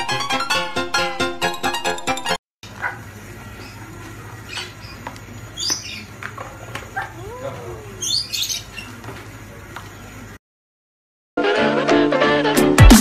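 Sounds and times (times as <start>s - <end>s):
lovebirds chirping: 2.8s - 9.1s.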